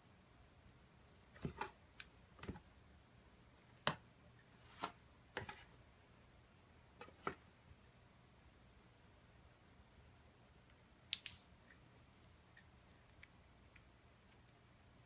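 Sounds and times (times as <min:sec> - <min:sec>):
faint clicks and taps: 0:10.6 - 0:14.6.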